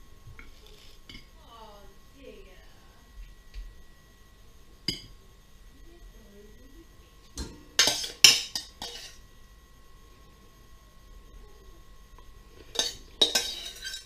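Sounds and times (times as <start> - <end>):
metal spoon clinking on saucepan: 12.7 - 14.0.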